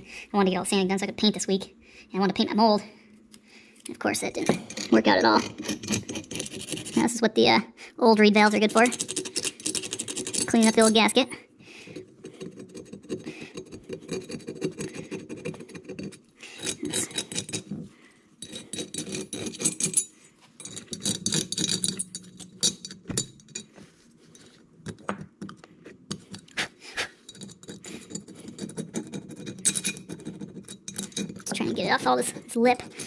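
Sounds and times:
metal scraping gasket residue: 8.4s - 11.2s.

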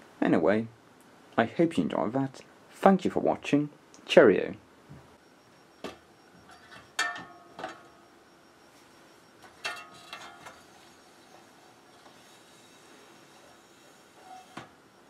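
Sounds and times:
metal clinks and knocks: 6.4s - 7.9s.

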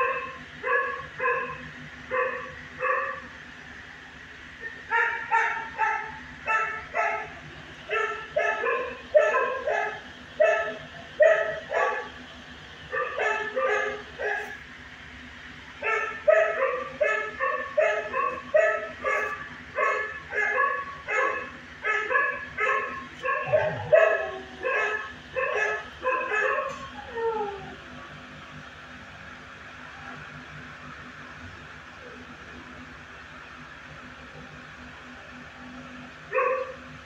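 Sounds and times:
dogs barking: 0.0s - 3.4s, 4.6s - 14.7s, 15.4s - 27.6s, 36.3s - 36.9s.

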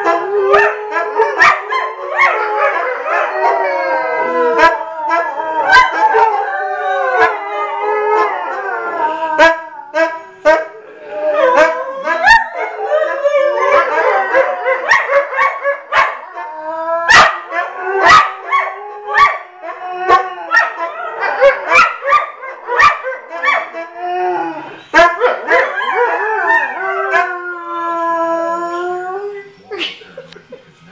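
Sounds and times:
dogs howling in chorus: 0.0s - 29.6s
dogs yipping: 14.3s - 16.3s, 17.1s - 19.4s, 20.1s - 23.9s.

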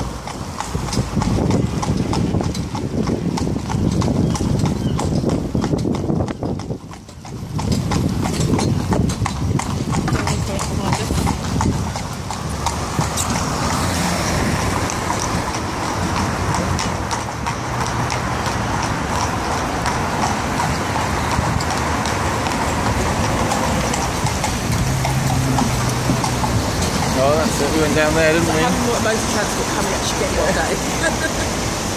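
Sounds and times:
traffic hissing on wet road: 0.0s - 3.6s, 10.0s - 31.9s
hooves on wet tarmac: 0.0s - 31.9s
vehicle engine hum: 7.5s - 31.9s.

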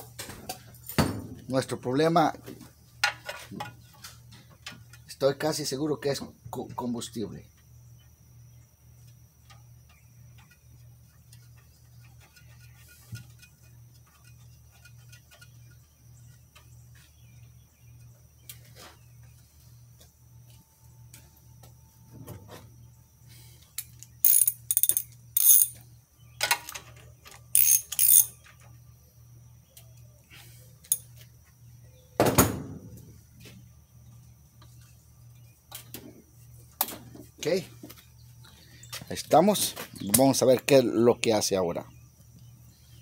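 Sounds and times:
socket wrench ratcheting: 23.8s - 25.8s, 27.5s - 28.4s.

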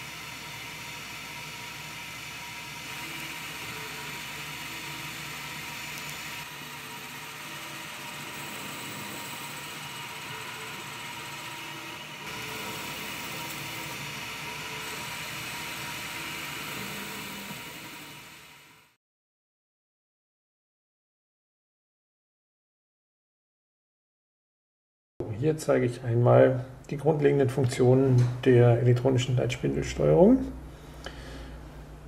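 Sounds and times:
metal lathe cutting: 0.0s - 19.0s.

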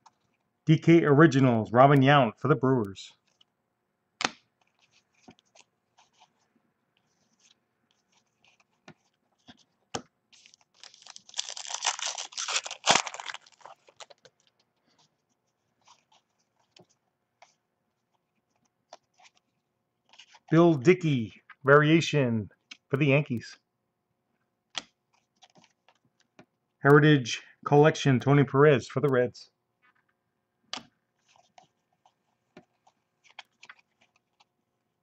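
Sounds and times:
sharp plastic snap: 4.2s - 4.4s
plastic wrapper tearing and crinkling: 10.4s - 14.6s.

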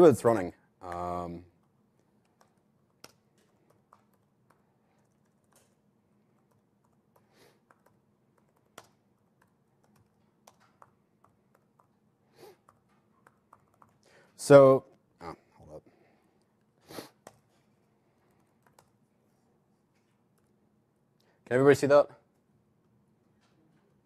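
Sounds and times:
room hum: 0.0s - 24.0s
keyboard keystrokes: 6.4s - 11.9s, 12.6s - 14.0s.

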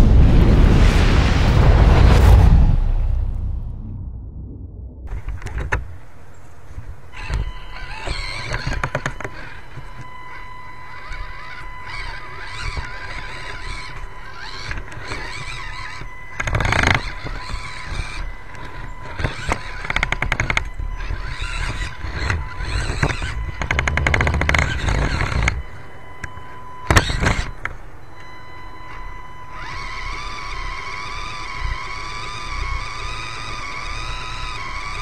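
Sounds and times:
loud noisy bursts: 0.0s - 5.7s
small electric motor whining: 5.1s - 35.0s.

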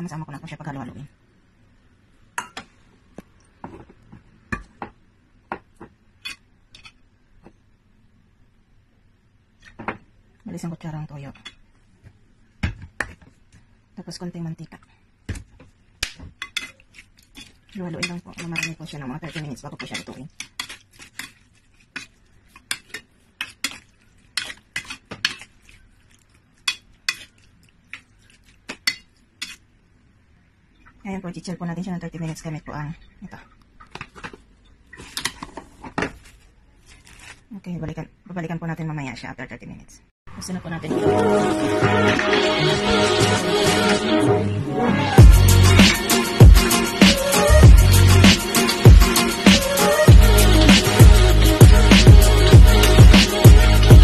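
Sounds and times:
metal spoon clinking and scraping bowl: 6.2s - 7.0s, 16.4s - 29.7s
metal spoon clinking on steel bowl: 17.4s - 21.4s.

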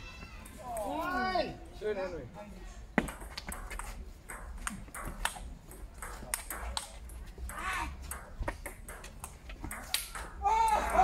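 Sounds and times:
table tennis ball clicking: 3.1s - 10.4s.

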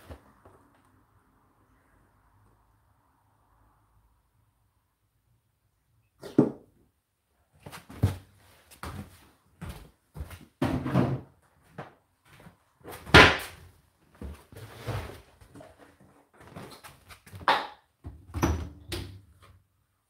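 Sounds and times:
household objects knocking and thudding: 10.6s - 11.3s.

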